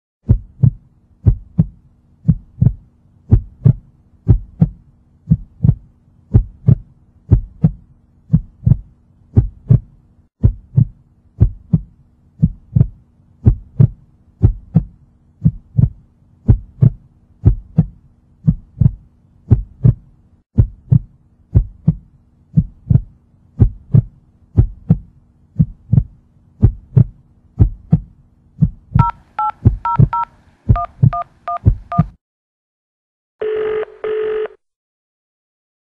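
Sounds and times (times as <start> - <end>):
heartbeat thumps: 0.2 - 32.2
telephone keypad tones: 29.0 - 32.1, 33.4 - 34.6.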